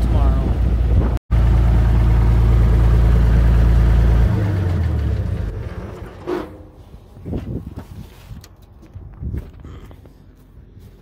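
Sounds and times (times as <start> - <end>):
tractor engine running: 0.0 - 7.1.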